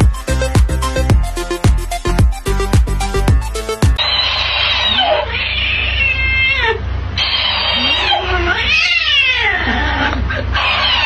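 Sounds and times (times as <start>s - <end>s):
cat yowling: 4.8s - 11.0s.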